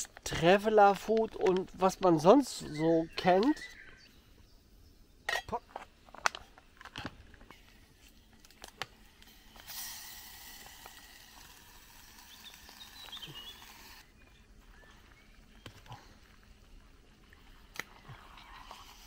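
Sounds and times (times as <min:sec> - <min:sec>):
metal pot and lid clinking: 0:05.3 - 0:05.6
food pouring into pot hiss: 0:08.9 - 0:14.1.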